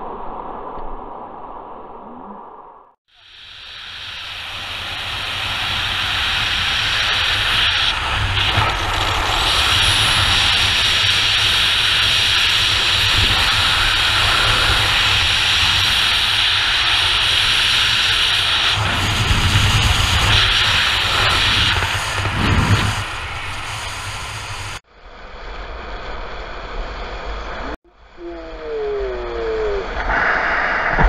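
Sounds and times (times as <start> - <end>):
wind hiss on microphone: 3.2 - 26.6
low wind buffeting: 4.0 - 31.0.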